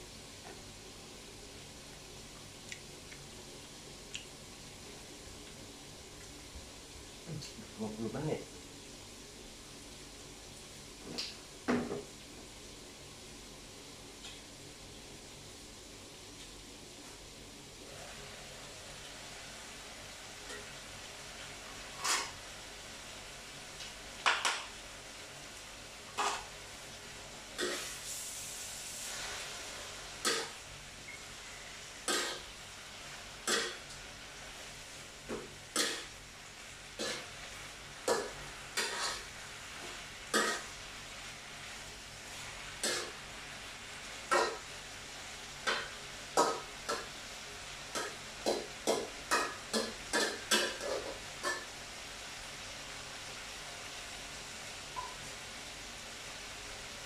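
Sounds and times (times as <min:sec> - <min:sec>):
faint frying hiss: 0:00.0 - 0:57.0
metal spatula scraping frying pan: 0:22.0 - 0:22.4, 0:38.1 - 0:39.3, 0:40.3 - 0:40.7.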